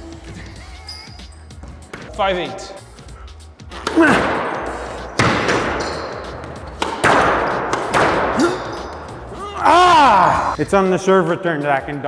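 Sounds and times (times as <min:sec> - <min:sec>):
squash ball smacks echoing: 0:03.7 - 0:09.1.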